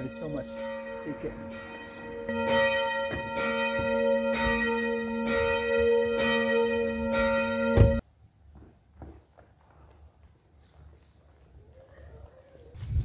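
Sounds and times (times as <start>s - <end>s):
church bell ringing: 0.0s - 8.0s.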